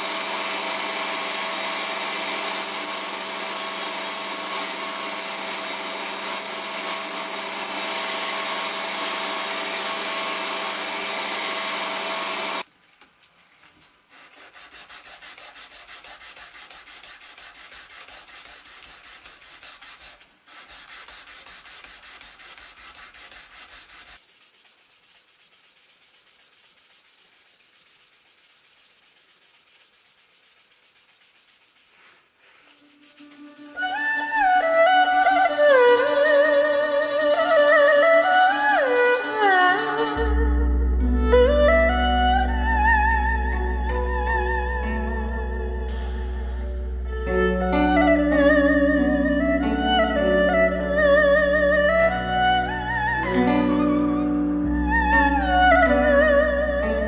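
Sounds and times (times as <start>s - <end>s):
belt grinder humming: 0.0s - 12.6s
hand sanding wood: 0.0s - 12.7s, 14.1s - 34.7s.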